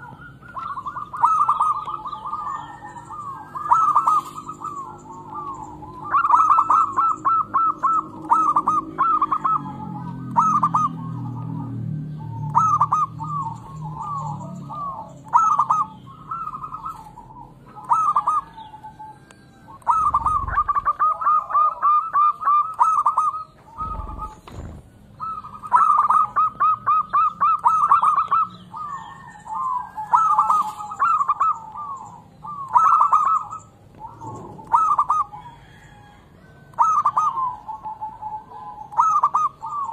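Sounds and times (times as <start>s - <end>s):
dove cooing: 0.0s - 39.9s
small birds chirping: 0.0s - 39.9s
low thumps: 23.6s - 25.2s.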